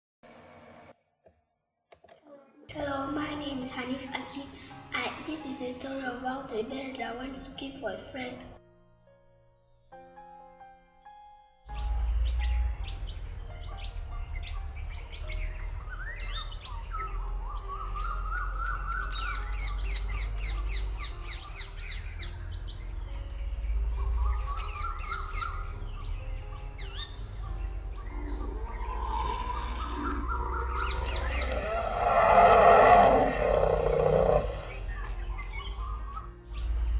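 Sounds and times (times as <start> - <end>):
birds chirping and trilling: 9.0 - 36.9
low rumble: 27.2 - 35.1.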